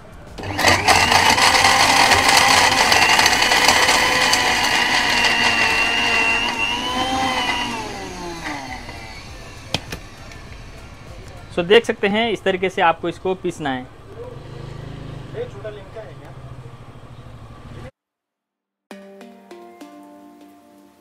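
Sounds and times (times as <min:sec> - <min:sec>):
mixer grinder whining: 0:00.3 - 0:11.2.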